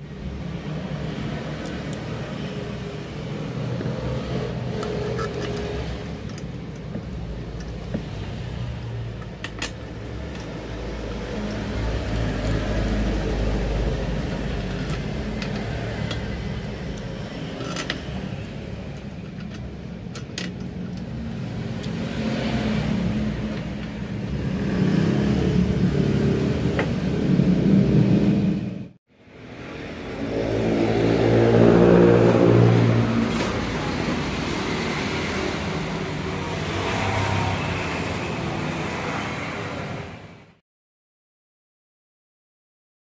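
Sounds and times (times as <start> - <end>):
vehicles passing on road: 0.0 - 40.6.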